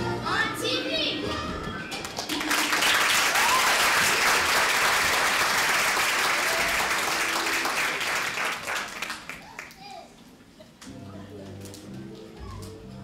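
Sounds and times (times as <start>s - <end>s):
audience applauding: 2.0s - 9.8s.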